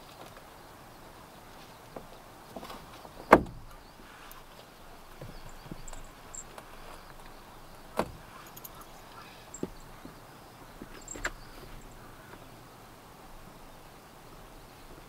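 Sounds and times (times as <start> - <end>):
sharp knocks: 3.3 - 3.8.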